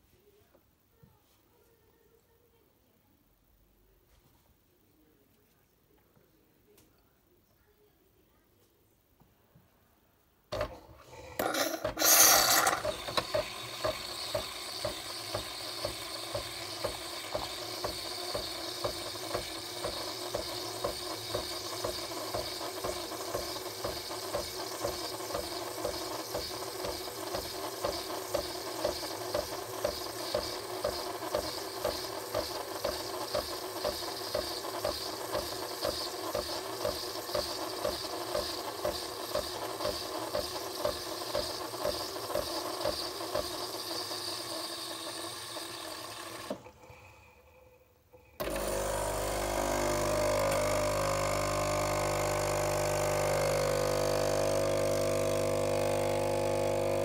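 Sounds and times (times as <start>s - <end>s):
coffee machine pump pulsing: 10.6s - 47.4s, 48.4s - 57.0s.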